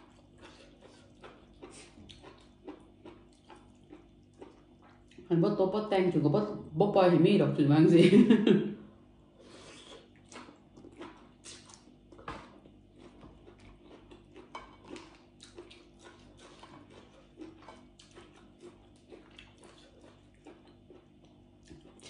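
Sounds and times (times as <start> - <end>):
person chewing with wet mouth clicks: 0.0 - 5.2, 9.9 - 22.0.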